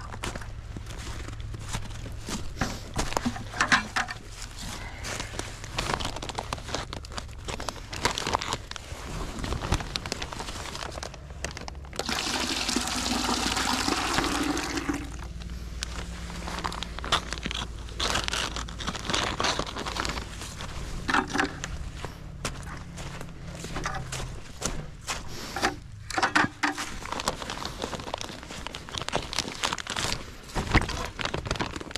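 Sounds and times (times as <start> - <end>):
plastic bag crinkling: 0.0 - 24.6, 25.3 - 31.9
liquid pouring into plastic bucket: 12.0 - 15.3
bag clicking: 16.5 - 21.8.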